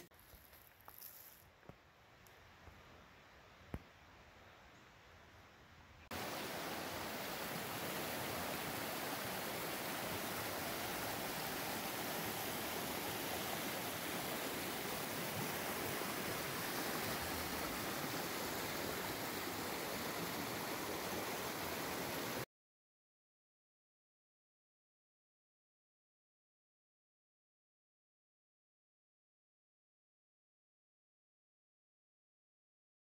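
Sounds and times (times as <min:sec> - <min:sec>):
stream rushing over rocks: 0:06.1 - 0:22.4.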